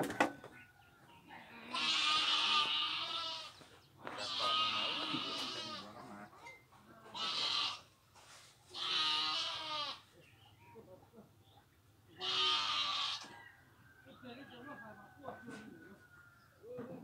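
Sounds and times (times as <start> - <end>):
goat bleating: 1.6 - 6.1, 7.1 - 8.0, 8.7 - 10.1, 12.1 - 13.4.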